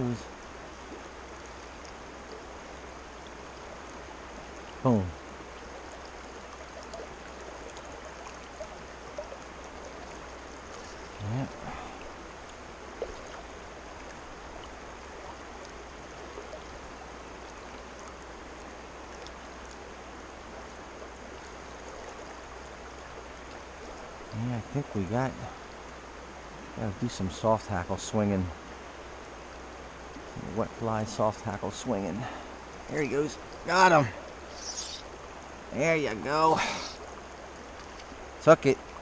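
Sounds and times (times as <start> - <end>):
creek water flowing: 0.0 - 39.0
man's voice: 32.9 - 34.2.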